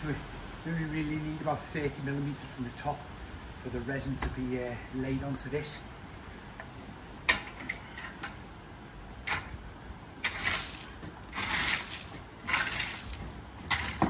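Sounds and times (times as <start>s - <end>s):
gravel tipping into wheelbarrow: 10.2s - 14.0s
shovel scraping gravel: 10.2s - 14.0s.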